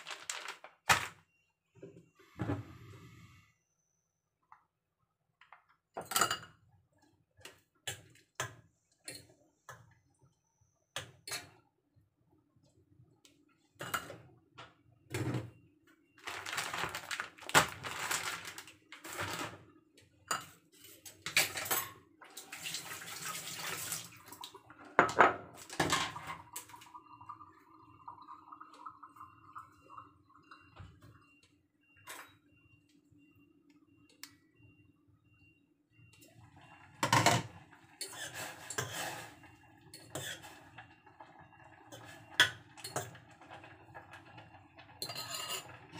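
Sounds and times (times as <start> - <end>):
pot and utensils clinking: 45.0 - 45.8.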